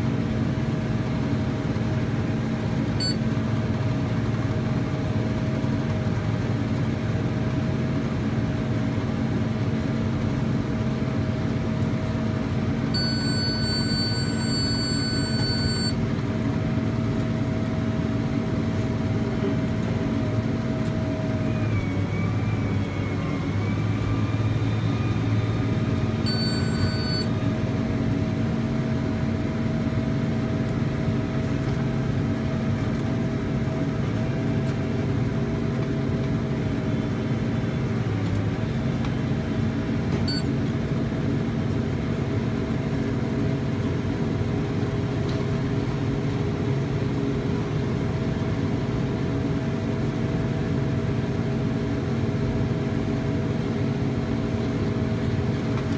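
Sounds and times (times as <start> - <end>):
high electronic beep: 3.0 - 3.2, 13.0 - 16.0, 26.2 - 27.3, 40.3 - 40.5.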